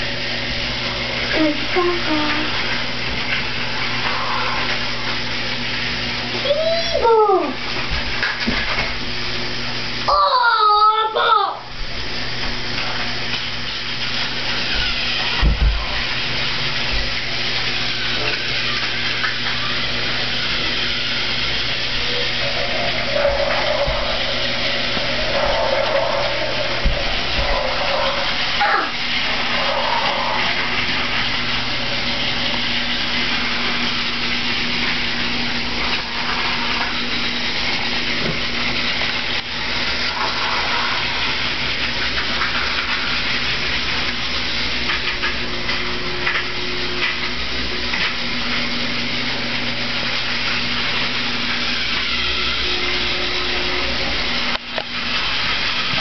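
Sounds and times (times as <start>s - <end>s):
toy train motors whirring: 12.8s - 15.4s, 16.3s - 48.6s, 50.0s - 56.0s.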